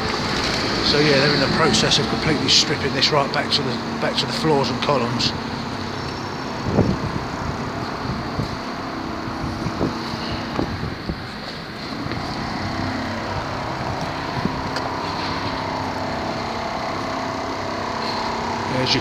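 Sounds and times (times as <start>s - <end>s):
mechanical hum: 0.0s - 19.0s
street traffic noise: 0.0s - 19.0s
wind on microphone: 6.6s - 14.8s.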